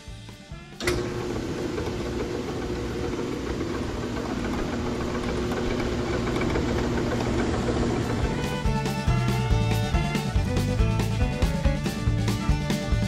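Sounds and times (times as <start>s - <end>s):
rock saw motor and blade humming: 1.0s - 10.6s.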